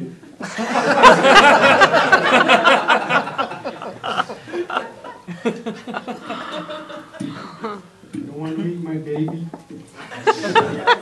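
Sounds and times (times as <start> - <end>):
audience laughing: 0.4 - 7.9, 10.0 - 11.0.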